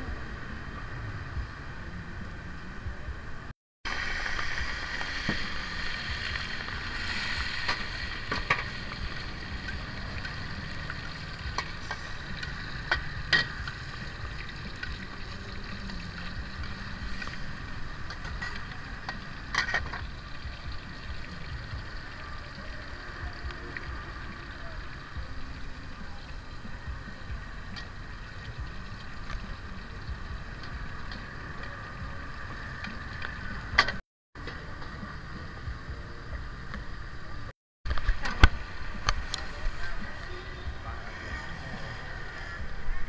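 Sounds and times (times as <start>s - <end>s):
food sizzling in a wok: 3.9s - 33.4s, 38.6s - 43.0s.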